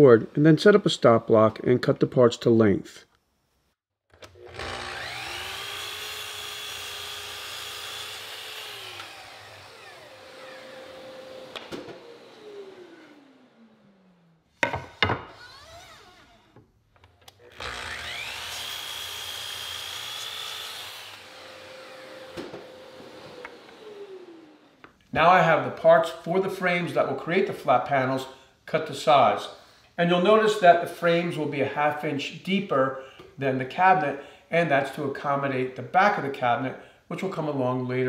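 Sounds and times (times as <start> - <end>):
miter saw cutting wood: 4.2 - 16.6, 17.4 - 24.8.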